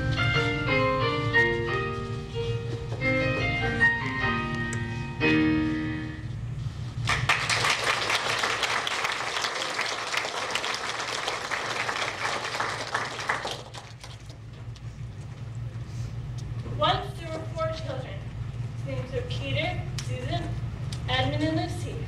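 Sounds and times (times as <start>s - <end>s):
piano music: 0.0s - 6.4s
audience applause: 7.0s - 14.2s.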